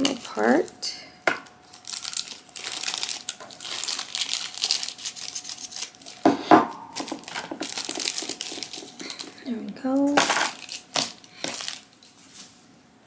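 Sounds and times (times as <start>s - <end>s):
plastic wrapping crinkling: 0.0s - 12.7s.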